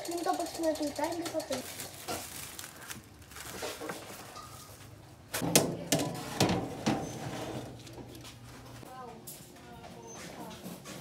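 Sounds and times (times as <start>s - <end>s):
plastic wrap crinkling: 1.5s - 4.9s
metal baking tray clattering: 5.4s - 8.2s.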